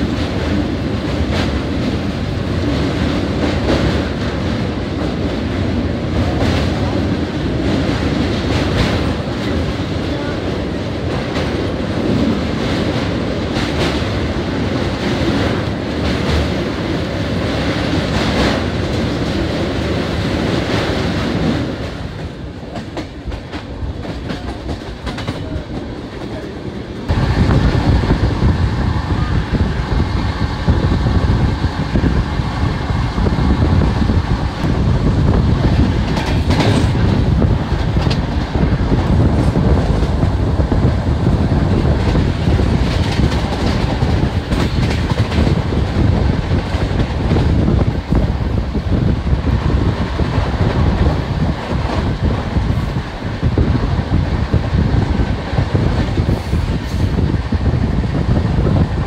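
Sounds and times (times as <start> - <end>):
train wheels clattering: 0.0 - 28.2, 33.9 - 49.1.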